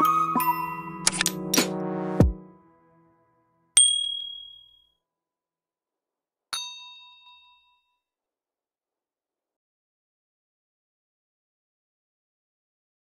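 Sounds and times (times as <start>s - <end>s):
bright metallic dings: 3.8s - 4.9s, 6.6s - 8.0s.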